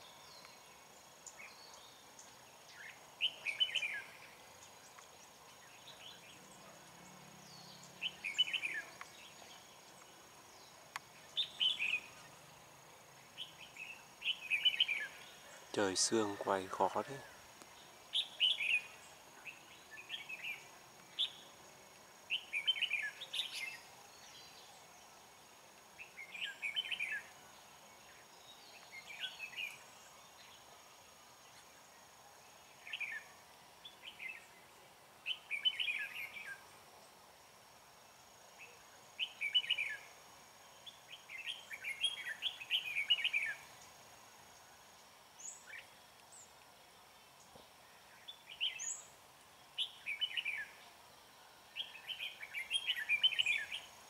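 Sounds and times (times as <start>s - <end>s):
birds singing warbled phrases: 0.0s - 12.6s, 13.2s - 21.6s, 22.3s - 25.1s, 26.0s - 27.3s, 35.2s - 36.6s, 38.6s - 40.1s, 40.8s - 43.9s, 49.8s - 50.8s, 51.8s - 54.0s.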